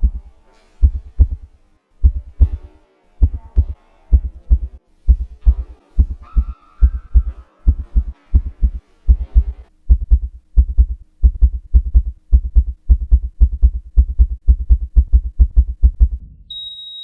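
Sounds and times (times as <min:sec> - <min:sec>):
heartbeat thumps: 0:00.0 - 0:16.4
faint steady hum: 0:00.0 - 0:16.6.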